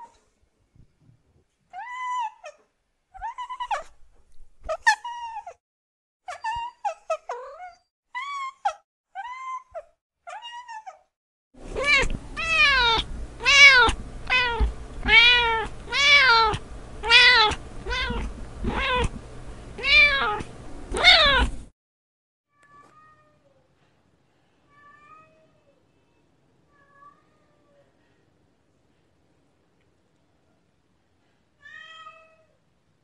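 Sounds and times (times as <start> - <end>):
cat meowing: 11.7 - 19.1, 19.8 - 21.5.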